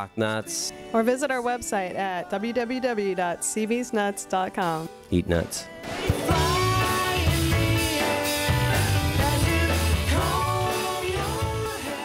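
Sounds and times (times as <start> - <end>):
person singing: 5.4 - 12.0
rock song: 5.4 - 12.0.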